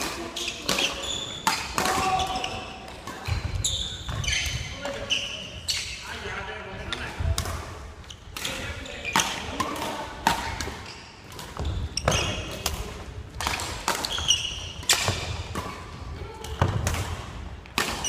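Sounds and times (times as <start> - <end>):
shoe squeaks: 0.3 - 2.7, 3.3 - 6.2, 10.8 - 12.6, 14.0 - 15.2
racket smacking shuttlecock: 7.4 - 18.0.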